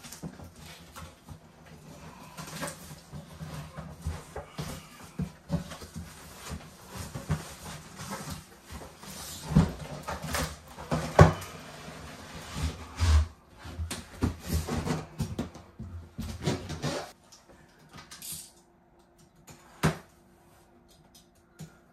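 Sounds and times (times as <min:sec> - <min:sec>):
cardboard boxes scraping: 0:00.1 - 0:15.2.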